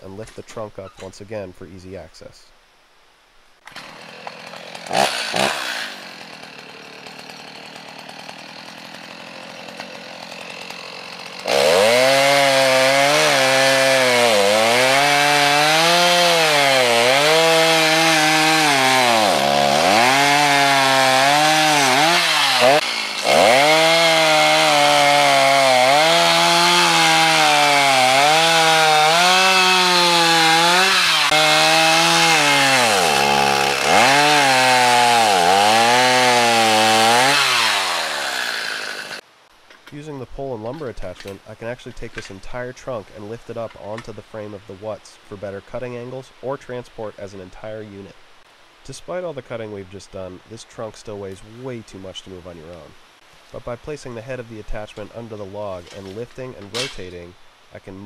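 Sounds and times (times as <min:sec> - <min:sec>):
chainsaw cutting log: 0:03.6 - 0:39.2.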